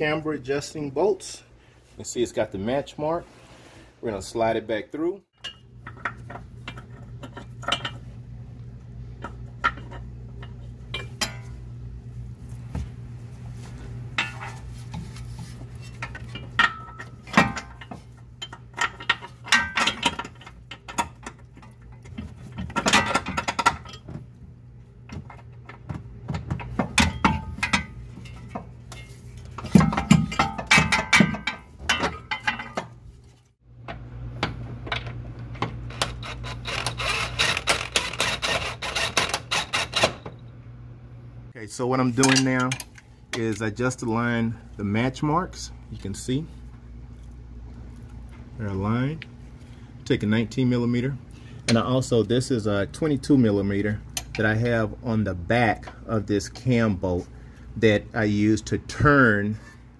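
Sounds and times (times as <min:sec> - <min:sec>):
steady low hum: 0:00.0 - 0:59.9
metal bolts and tools clinking: 0:05.4 - 0:08.0, 0:09.2 - 0:11.6, 0:15.8 - 0:24.2, 0:25.1 - 0:33.0, 0:42.1 - 0:43.6.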